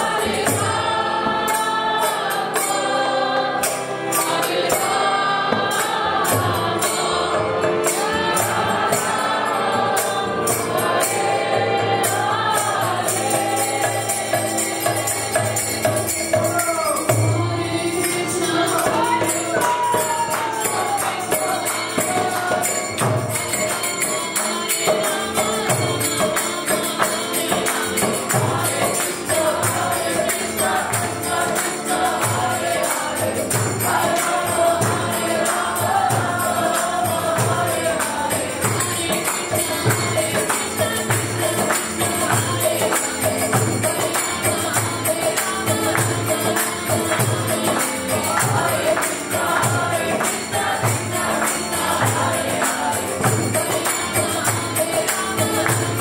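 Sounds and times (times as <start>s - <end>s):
group singing: 0.0s - 56.0s
harmonium: 0.0s - 56.0s
woman singing: 12.1s - 56.0s
hand cymbals jingling: 12.7s - 56.0s.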